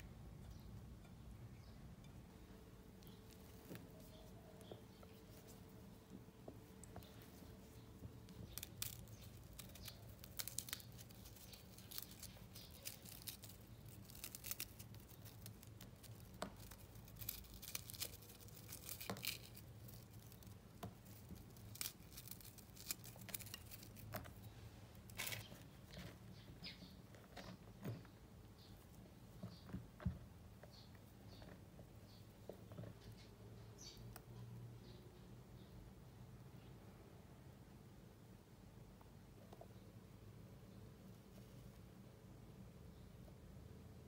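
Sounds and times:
cookies cracking and crumbling: 6.8 - 28.2.

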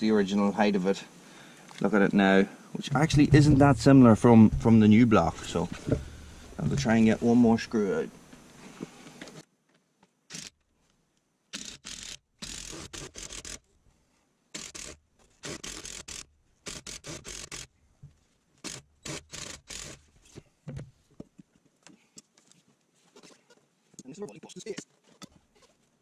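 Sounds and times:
rubber tyre scraping on wood: 2.9 - 7.8.

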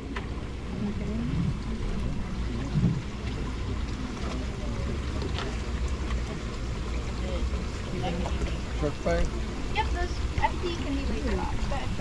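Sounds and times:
wind rumble on microphone: 0.8 - 3.2.

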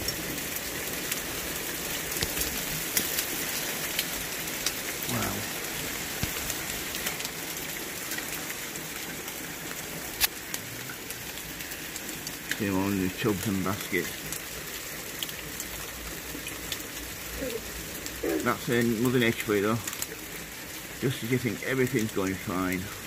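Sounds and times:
hailstones ticking: 0.0 - 23.0
heavy rain and hail: 0.0 - 23.0.

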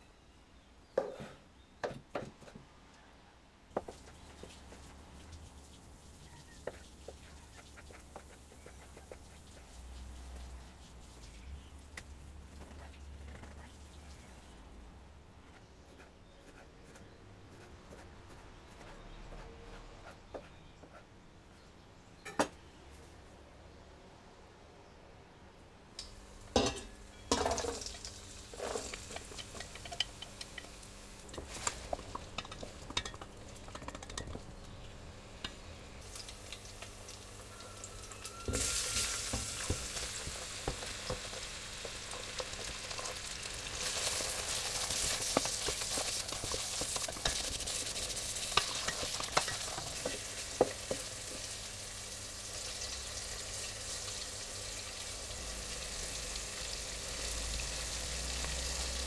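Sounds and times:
onion sizzling in a pot: 26.0 - 59.0.

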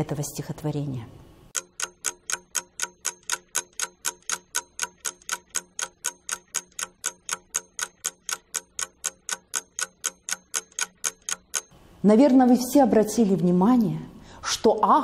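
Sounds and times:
clock ticking: 1.5 - 11.8.

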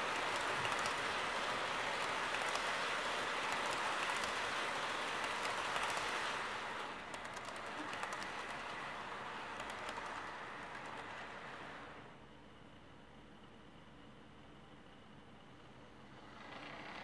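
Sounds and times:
model train wagons rumbling: 0.0 - 12.0
wheels clicking at rail joints: 0.0 - 12.0.

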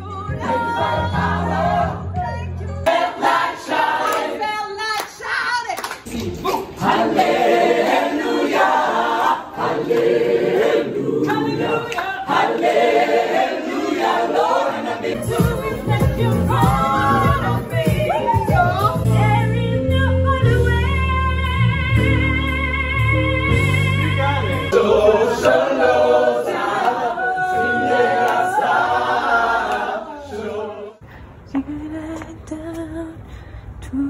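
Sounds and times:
crowd singing together: 0.0 - 2.2, 2.8 - 4.9, 6.1 - 19.2, 24.4 - 31.0.

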